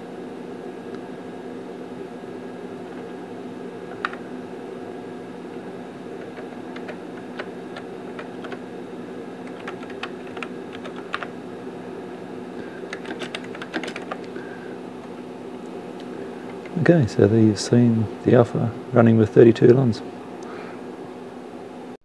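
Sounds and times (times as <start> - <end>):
machine hum: 0.0 - 22.0
keyboard typing: 3.9 - 4.2, 6.2 - 8.6, 9.4 - 11.4, 12.8 - 14.4.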